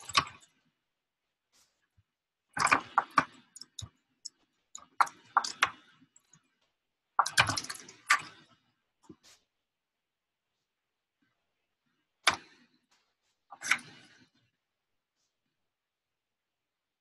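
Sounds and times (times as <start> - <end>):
typing on computer keyboard: 2.6 - 3.9, 7.2 - 8.3.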